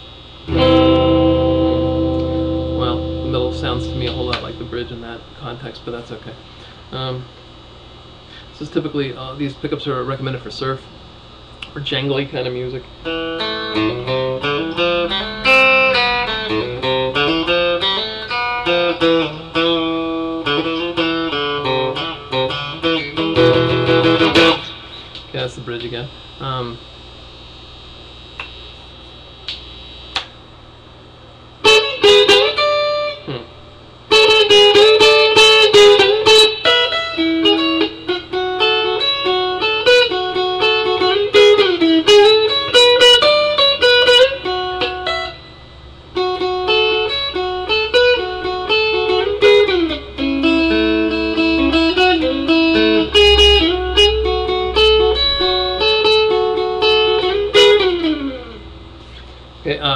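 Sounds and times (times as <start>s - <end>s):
electric guitar picked notes: 0.2s - 5.4s, 12.9s - 26.7s, 31.6s - 59.2s.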